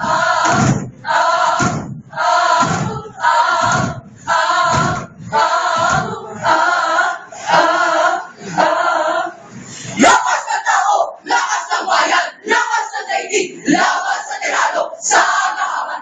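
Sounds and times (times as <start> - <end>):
low thuds: 0.0 - 6.5
crowd chanting in unison: 0.0 - 16.0.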